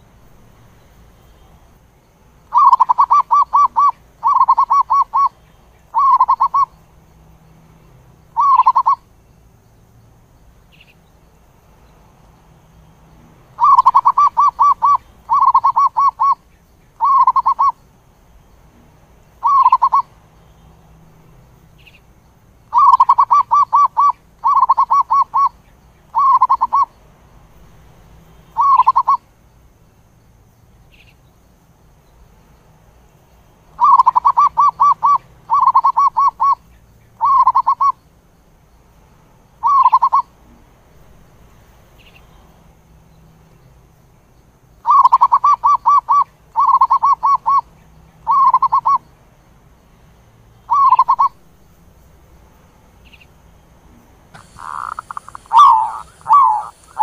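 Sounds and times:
dove cooing: 2.5 - 5.3, 5.9 - 6.7, 8.4 - 9.0, 13.6 - 16.4, 17.0 - 17.8, 19.4 - 20.1, 22.7 - 25.6, 26.2 - 26.9, 28.6 - 29.2, 33.8 - 36.6, 37.2 - 38.0, 39.6 - 40.3, 44.9 - 47.7, 48.3 - 49.0, 50.7 - 51.4, 54.4 - 57.0.

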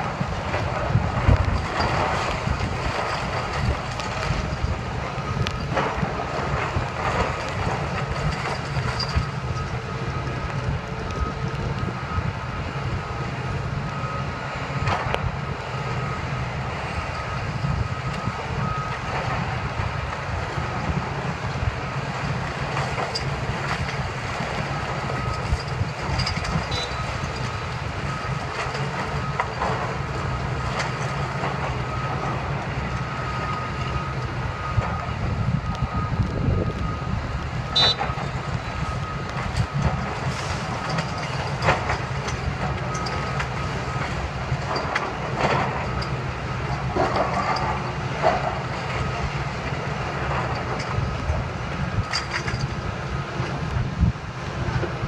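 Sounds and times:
excavator diesel engine under load: 0.0 - 55.0
back-up alarm beeping: 24.6 - 44.2.

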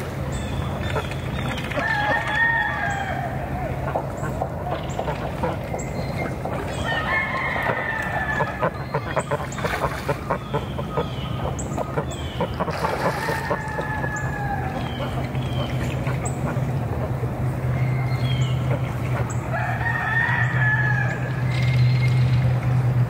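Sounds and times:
chickens clucking: 0.7 - 20.6
rooster crowing: 1.8 - 3.6, 6.8 - 8.7, 13.0 - 15.0, 19.5 - 21.4.

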